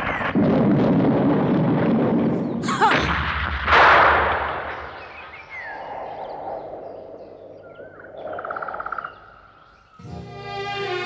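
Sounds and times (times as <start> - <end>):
loud explosion blast: 0.0 - 5.7.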